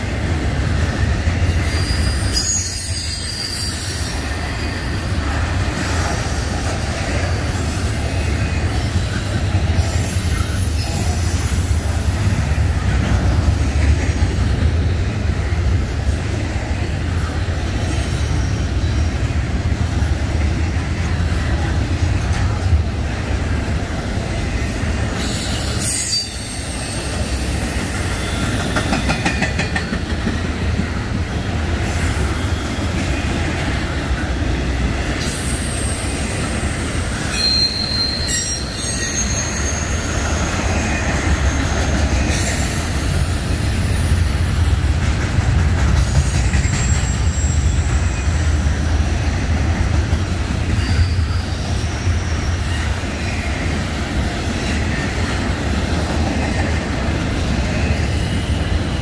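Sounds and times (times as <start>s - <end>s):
freight train wheels rumbling: 0.0s - 59.0s
high-pitched wheel squeal: 1.6s - 4.8s, 25.2s - 27.2s, 37.3s - 44.6s.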